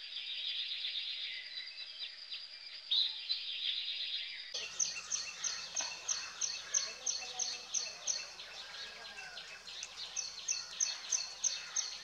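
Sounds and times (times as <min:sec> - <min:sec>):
birds chirping: 0:04.6 - 0:12.0.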